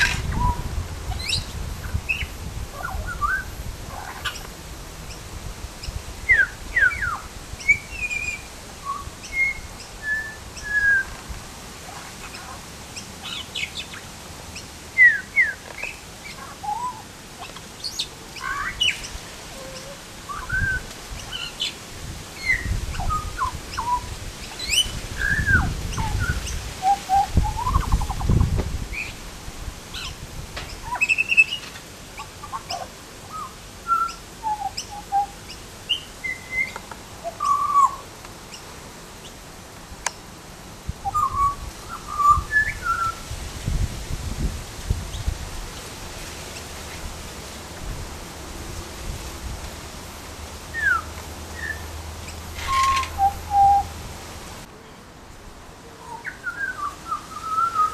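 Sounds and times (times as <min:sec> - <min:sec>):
bird singing fluting notes: 0:52.6 - 0:53.9.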